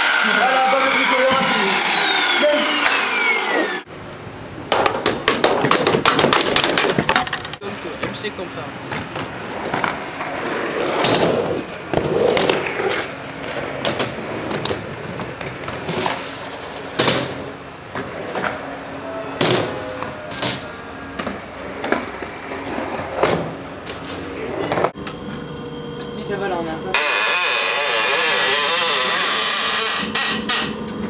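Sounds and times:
scooter landing clacks: 4.7 - 8.2
scooter wheels rolling on concrete: 4.8 - 25.0.

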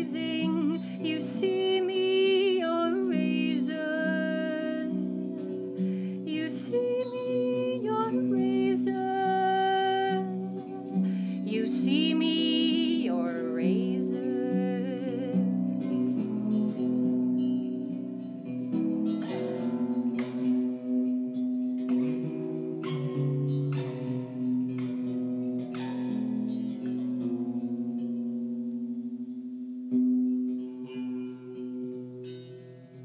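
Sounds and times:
woman singing with vibrato: 0.0 - 5.3, 6.2 - 15.5
electric guitar picked rhythm: 13.9 - 33.0.

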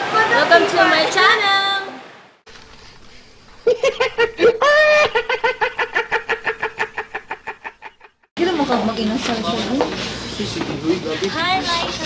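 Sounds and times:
man laughing high-pitched: 3.6 - 8.2.

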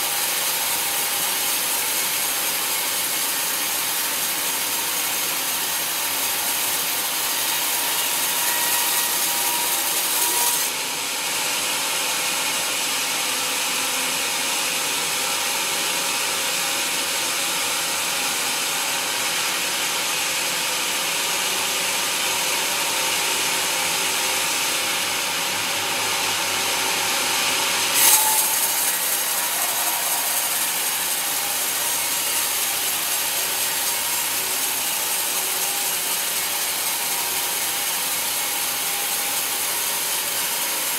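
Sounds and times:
band saw cutting log: 0.0 - 11.5, 22.4 - 40.9.

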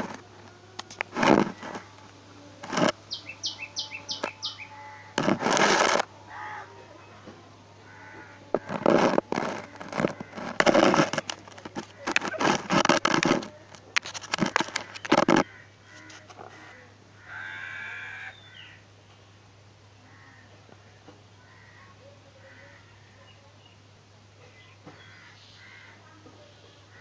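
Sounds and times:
rustling against microphone: 0.0 - 6.1, 7.2 - 16.8
pitched animal call: 2.6 - 7.2, 14.4 - 18.8.

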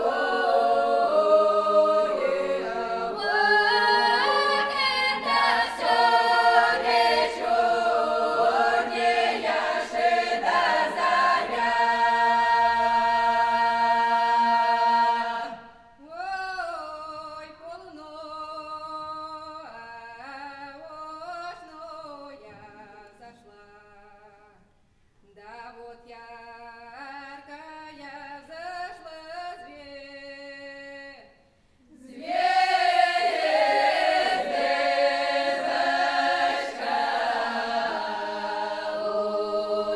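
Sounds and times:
unaccompanied folk choir singing: 0.0 - 16.0, 31.9 - 39.9.

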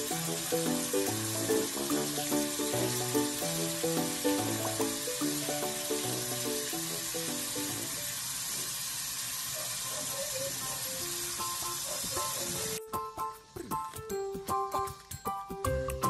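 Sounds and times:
light background music: 0.0 - 7.9, 10.8 - 16.0
tap water running into sink: 0.0 - 12.8.

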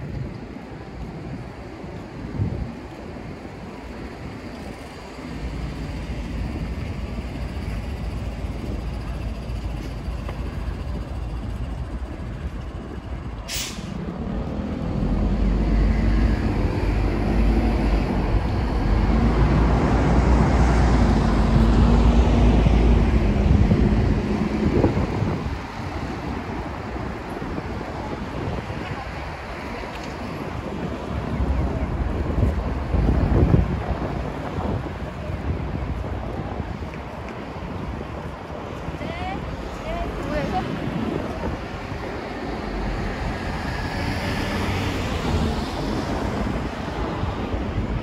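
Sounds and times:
rumble of passing vehicles: 0.0 - 48.0
heavy vehicle engine close by: 0.1 - 48.0
short sharp hiss: 13.5 - 14.0.

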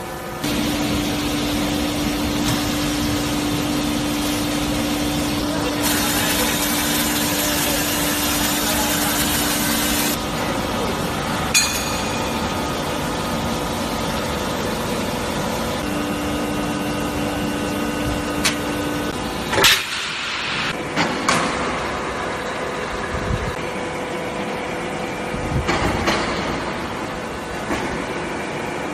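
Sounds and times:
machine running: 0.0 - 21.0
factory noise: 0.0 - 28.9
machine hum: 0.0 - 28.9.

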